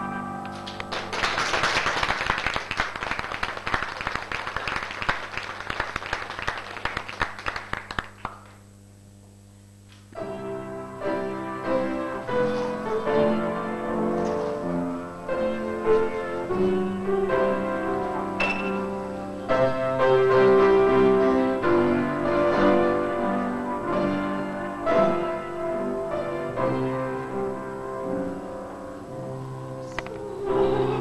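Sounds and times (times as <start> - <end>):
piano music: 0.0 - 1.5, 10.2 - 31.0
audience clapping: 0.5 - 8.6.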